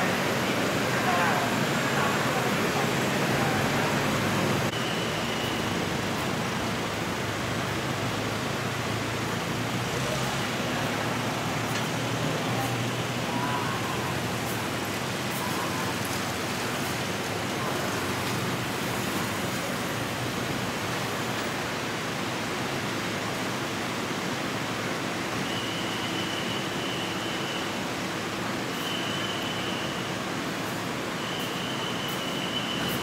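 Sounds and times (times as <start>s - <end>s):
vehicles idling: 0.0s - 21.6s
road traffic rushing: 0.0s - 33.0s.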